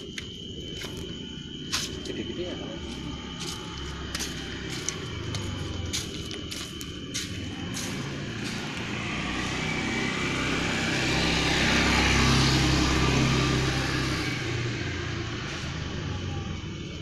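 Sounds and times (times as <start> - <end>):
vehicle driving past: 2.8 - 17.0.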